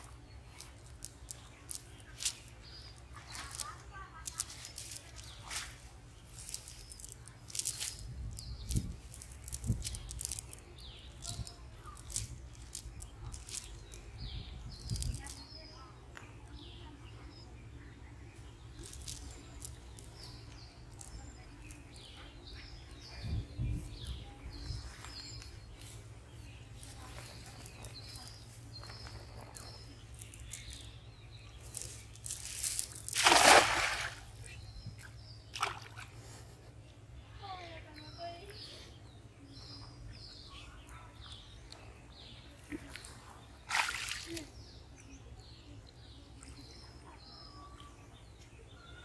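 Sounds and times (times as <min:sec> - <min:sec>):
birds chirping: 0:00.0 - 0:49.0
net splashing onto water: 0:33.0 - 0:34.4, 0:35.5 - 0:36.1, 0:43.7 - 0:44.4
sharp splash: 0:33.1 - 0:34.4, 0:35.5 - 0:36.1, 0:43.7 - 0:44.4.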